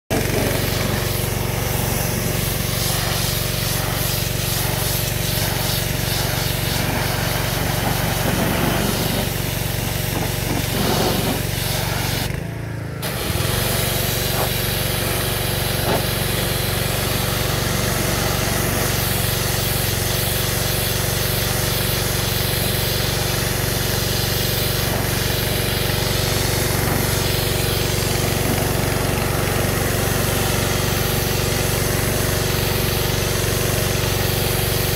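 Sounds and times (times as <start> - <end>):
pressure washer spraying metal sign: 0.1 - 34.9
motor humming: 13.0 - 20.0.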